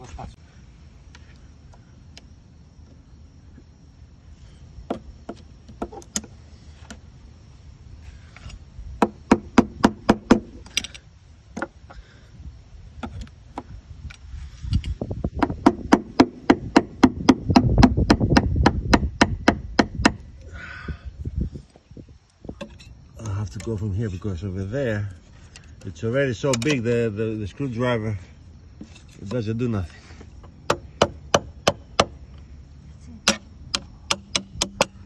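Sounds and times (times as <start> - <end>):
rapid hammering on metal: 34.1 - 35.0.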